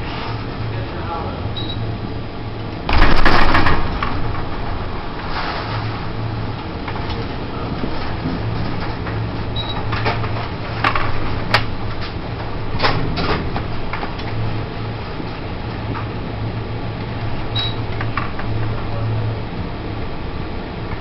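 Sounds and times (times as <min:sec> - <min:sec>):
ship engine hum: 0:00.0 - 0:21.0
stormy sea: 0:00.0 - 0:21.0
sharp knocks and rattles: 0:02.8 - 0:14.5.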